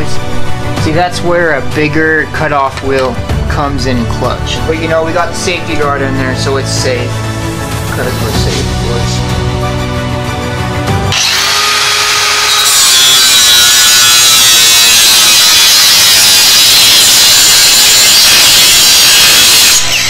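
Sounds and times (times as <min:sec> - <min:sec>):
angle grinder cutting metal: 0:11.1 - 0:20.0.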